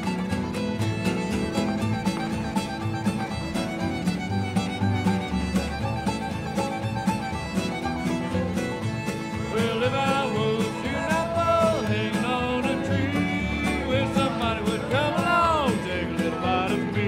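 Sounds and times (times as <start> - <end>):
fiddle: 0.0 - 17.0
string band playing dance tune: 0.0 - 17.0.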